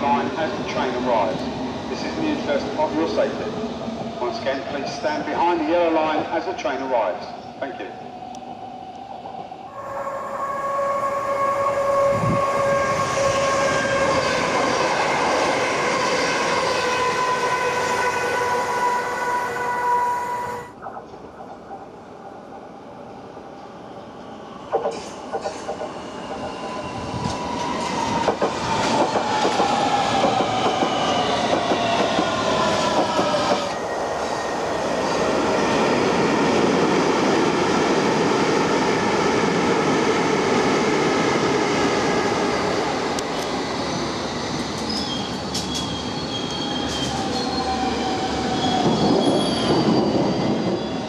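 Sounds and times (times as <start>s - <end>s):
train rumbling: 8.3s - 18.9s, 20.6s - 51.0s
train whine falling in pitch: 9.7s - 20.8s
high wheel squeal: 43.9s - 51.0s.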